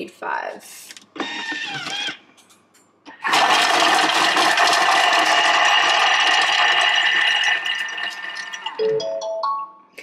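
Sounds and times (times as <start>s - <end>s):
food processor blade whirring: 1.2s - 2.2s, 3.2s - 7.0s.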